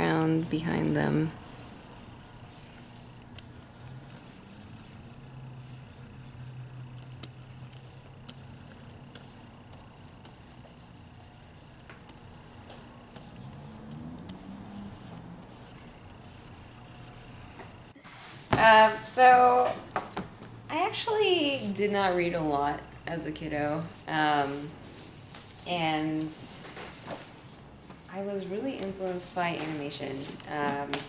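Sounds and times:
stylus rubbing on tablet screen: 0.0s - 18.0s.

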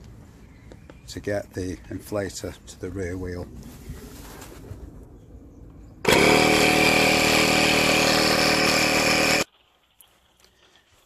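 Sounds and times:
tyre inflator compressor running: 6.0s - 9.5s.

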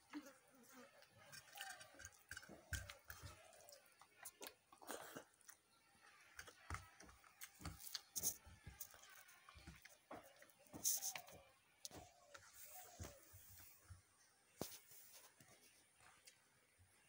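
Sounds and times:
close-up chewing: 0.1s - 12.0s.

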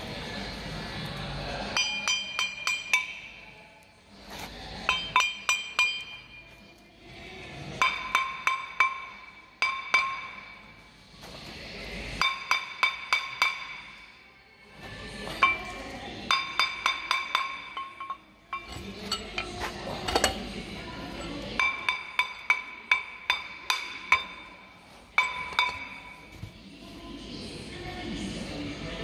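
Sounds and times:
hammer tapping ringing metal disc: 21.6s - 24.5s.

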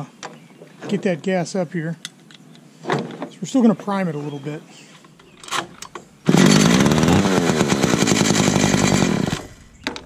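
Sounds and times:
chainsaw engine revving: 5.6s - 9.8s.

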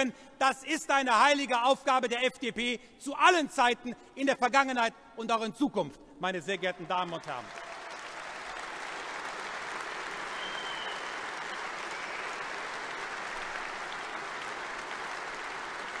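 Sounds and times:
audience applauding: 6.7s - 16.0s.

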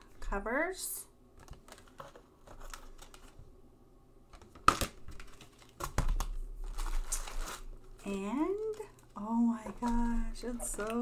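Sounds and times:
plastic wrapping crinkling: 1.4s - 3.4s, 4.4s - 11.0s.

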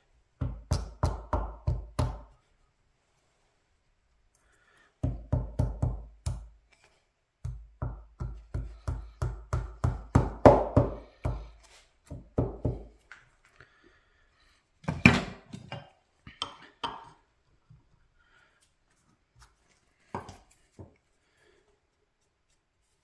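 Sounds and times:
mallet knocking on wood block: 7.5s - 11.0s.

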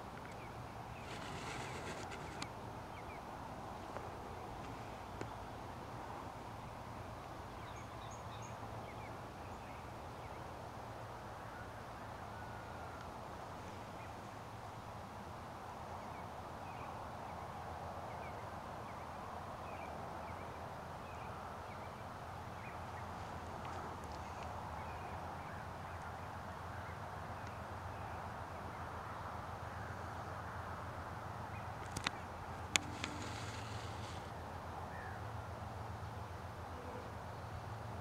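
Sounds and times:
distant geese honking: 32.7s - 34.4s.

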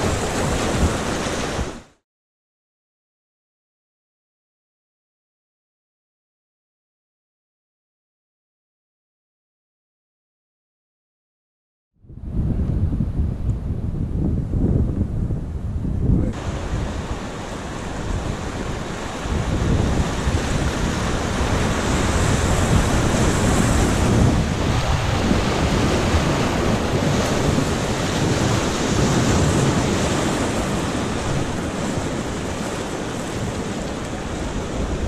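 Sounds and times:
wind on microphone: 0.0s - 1.9s, 12.0s - 35.0s
whitewater rushing: 16.4s - 35.0s.

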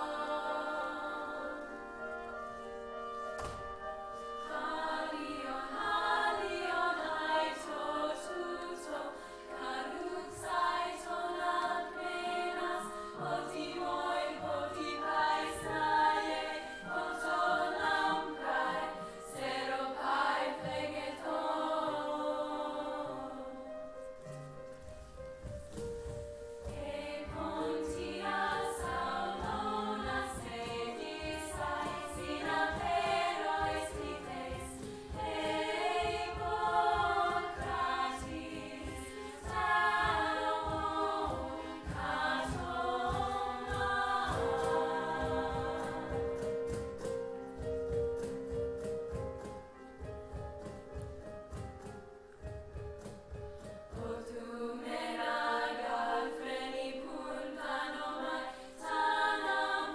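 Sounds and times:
women singing in chorus: 0.0s - 2.0s, 4.5s - 23.7s, 26.7s - 46.8s, 53.9s - 59.9s.

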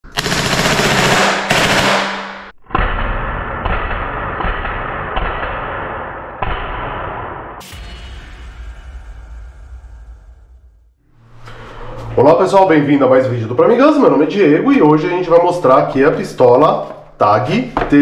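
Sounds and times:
rapid bb pistol shots: 0.1s - 2.5s
sharp hit: 1.4s - 12.4s.

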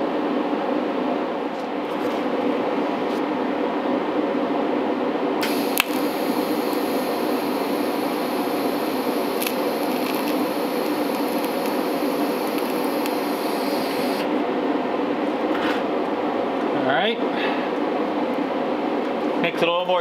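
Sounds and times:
steady hum: 0.0s - 19.5s
arc crack: 5.4s - 14.3s
welding arc hissing: 5.4s - 14.3s.

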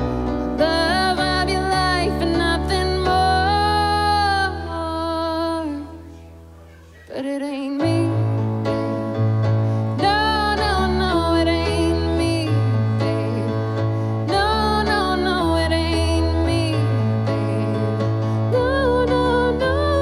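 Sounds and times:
electronic keyboard chords: 0.0s - 6.9s, 7.8s - 20.0s
woman singing: 0.5s - 6.2s, 7.1s - 8.9s, 10.0s - 20.0s.

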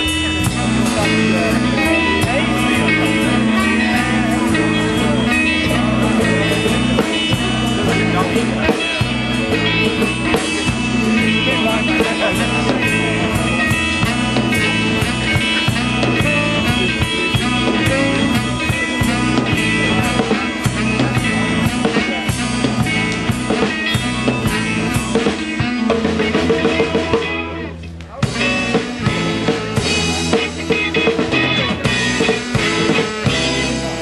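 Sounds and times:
rock band playing: 0.0s - 34.0s.

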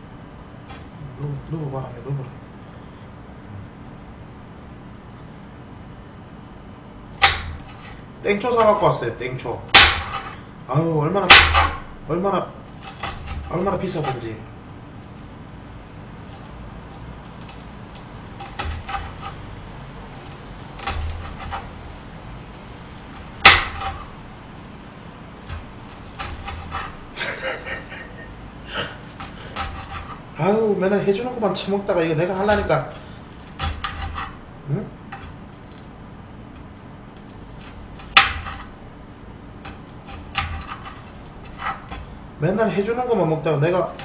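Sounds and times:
knife chopping on cutting board: 7.2s - 8.0s, 9.7s - 10.4s, 11.3s - 11.9s, 12.8s - 14.2s, 18.4s - 19.4s, 20.2s - 21.7s, 23.2s - 24.1s, 25.4s - 27.0s, 29.1s - 30.2s, 32.3s - 34.4s, 37.6s - 38.7s, 39.6s - 42.1s
sharp knock: 9.8s - 10.3s.

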